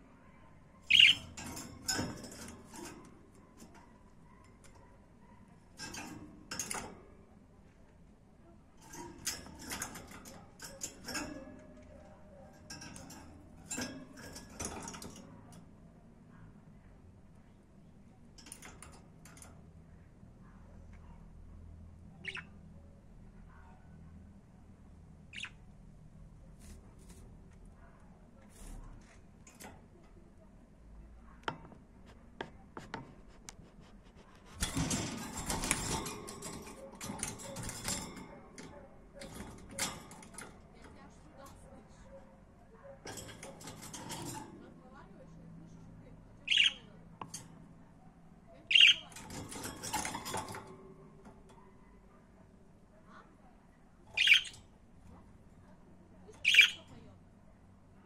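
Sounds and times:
clicks against cage bars: 0.8 - 8.1, 8.7 - 16.3, 18.1 - 21.5, 26.3 - 52.9.

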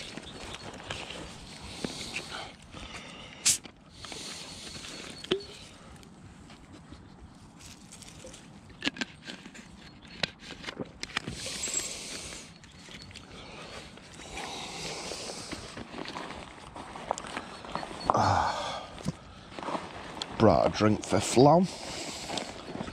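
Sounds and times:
rustling: 4.1 - 18.1, 18.9 - 22.9.

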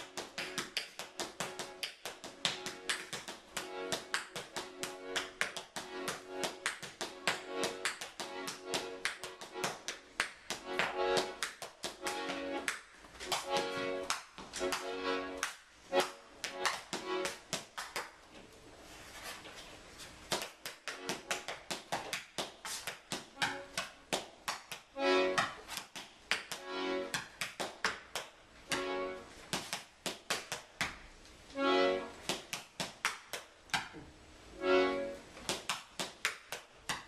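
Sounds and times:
accordion chords: 0.0 - 17.6, 20.8 - 22.0, 23.2 - 29.5, 31.4 - 32.3, 34.3 - 35.4
tap shoes on wooden stage: 0.0 - 18.2, 20.2 - 28.9, 29.5 - 31.1, 32.2 - 33.9, 35.4 - 37.0.

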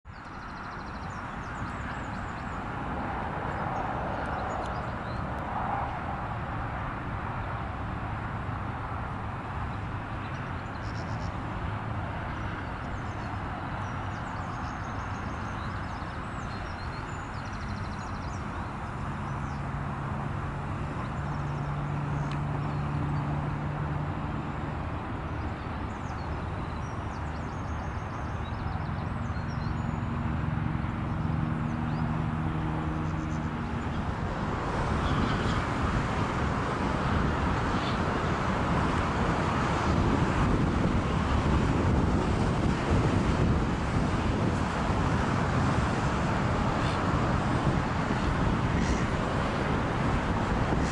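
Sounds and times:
small birds chirping: 0.1 - 2.7, 9.7 - 11.5, 12.2 - 19.7
distant road traffic rumble: 0.1 - 50.9
engine hum: 0.1 - 50.9
wind on microphone: 0.9 - 50.9.

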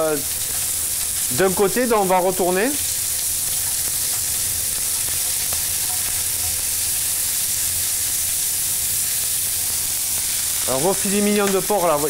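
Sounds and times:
meat sizzling in a frying pan: 0.0 - 12.0
metal tongs turning meat: 0.3 - 8.4.

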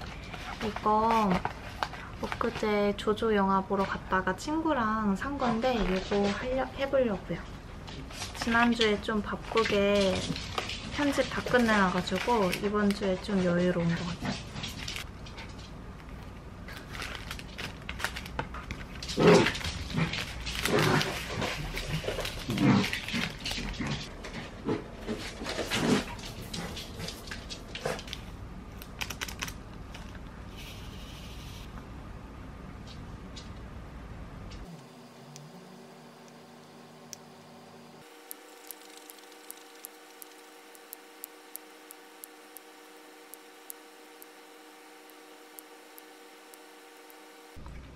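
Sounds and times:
faint steady hum: 14.8 - 47.9
pen clicking on rhinestones: 38.0 - 47.2.

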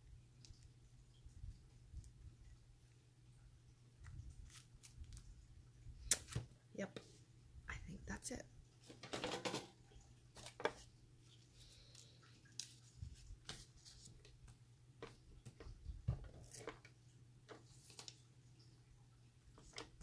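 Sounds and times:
low steady hum: 0.0 - 20.0
paper rustling and tapping: 12.6 - 18.2.

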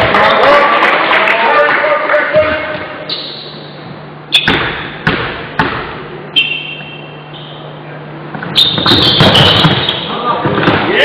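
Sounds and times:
basketball bouncing on wooden court: 4.4 - 6.0, 8.4 - 10.9
thin high squeak: 8.5 - 10.1.

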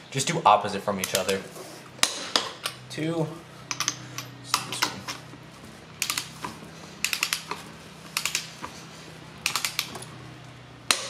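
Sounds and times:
steady low hum: 0.0 - 11.0
torque wrench ratcheting clicks: 6.0 - 6.4, 7.0 - 7.6, 8.2 - 8.5, 9.4 - 10.0.

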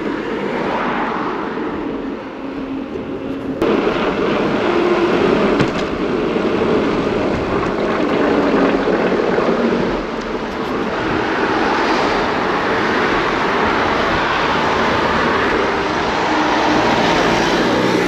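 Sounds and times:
traffic: 0.0 - 18.0
wind on microphone: 0.0 - 18.0.

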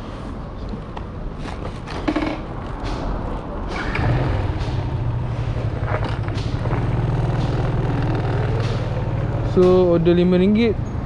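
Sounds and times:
motorcycle engine idling: 4.0 - 10.6.

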